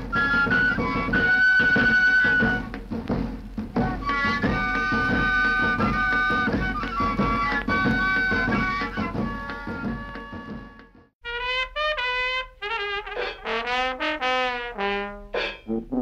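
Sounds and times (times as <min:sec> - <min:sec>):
flute-like wind instrument: 0:00.0 - 0:02.8, 0:03.7 - 0:13.4
quick drumming: 0:00.0 - 0:11.1.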